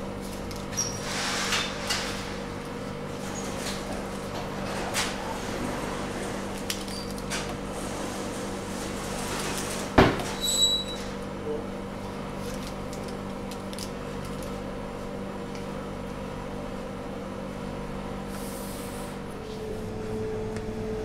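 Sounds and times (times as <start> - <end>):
display case hum: 19.2 - 21.0.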